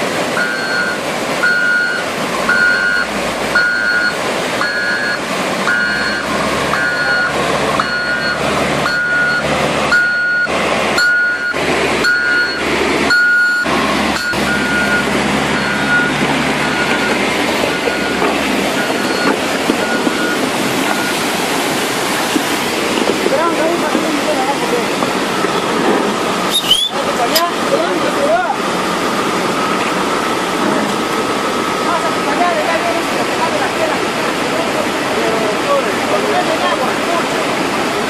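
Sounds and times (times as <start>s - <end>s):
low-running loader engine: 0.0s - 38.0s
rushing floodwater: 0.0s - 38.0s
reversing alarm beeping: 0.4s - 21.4s, 25.3s - 25.8s.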